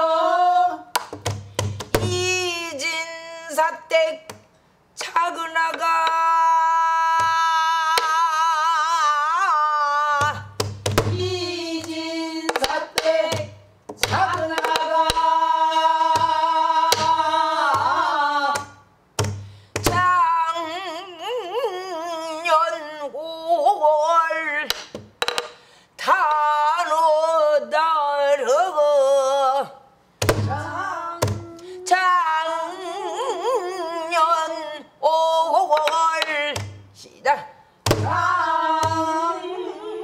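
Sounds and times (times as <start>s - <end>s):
woman singing with vibrato: 0.0s - 1.0s, 1.9s - 4.4s, 5.0s - 18.9s, 19.8s - 24.8s, 26.0s - 40.0s.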